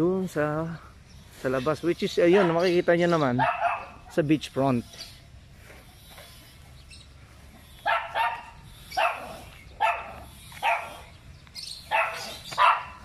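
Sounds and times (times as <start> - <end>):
dog barking angrily: 2.2 - 2.7, 3.3 - 4.2, 7.7 - 13.0.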